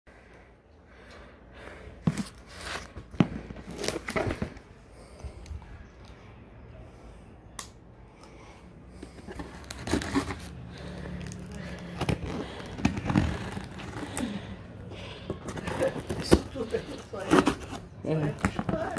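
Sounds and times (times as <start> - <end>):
boxes knocking and scraping: 9.0 - 10.6, 15.1 - 18.9
plastic rustling and crinkling: 9.1 - 14.5, 15.2 - 18.9.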